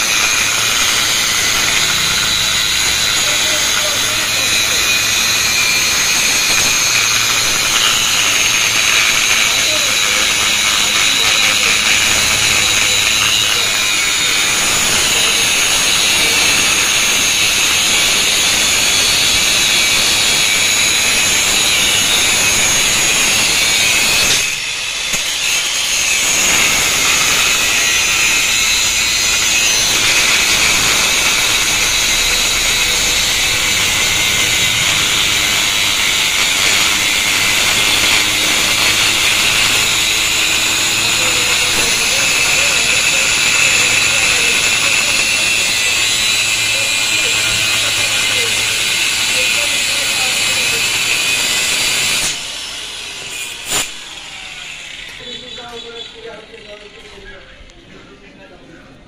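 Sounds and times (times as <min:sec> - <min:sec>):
angle grinder cutting steel: 0:00.0 - 0:57.4.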